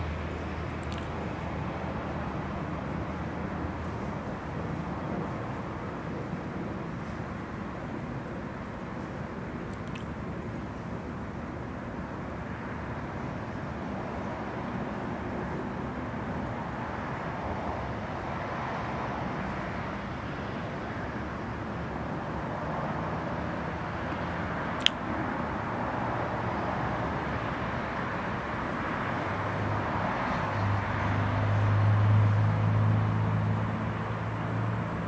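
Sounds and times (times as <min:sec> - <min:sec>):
background traffic noise: 0:00.0 - 0:35.0
vehicle engine hum: 0:00.0 - 0:35.0
sharp click: 0:24.8 - 0:25.0.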